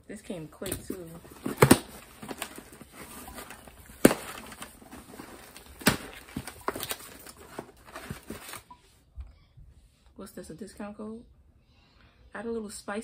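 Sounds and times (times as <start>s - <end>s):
package rustling: 0.6s - 8.7s.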